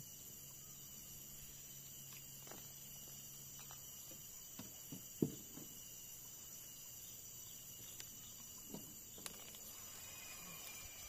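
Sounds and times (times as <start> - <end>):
insects droning: 0.0 - 11.0
knocks and thumps on a boat: 4.0 - 5.8.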